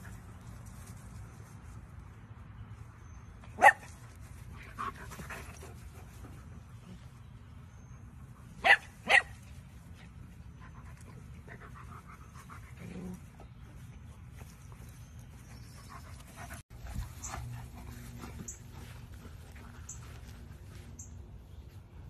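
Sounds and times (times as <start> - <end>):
dog barking: 3.6 - 3.8, 8.6 - 9.3.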